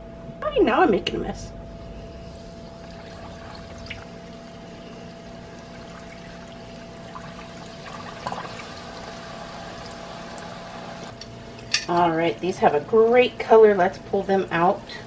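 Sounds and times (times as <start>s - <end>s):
faint steady hum: 0.0s - 15.0s
food sizzling and bubbling in oil: 2.0s - 11.2s.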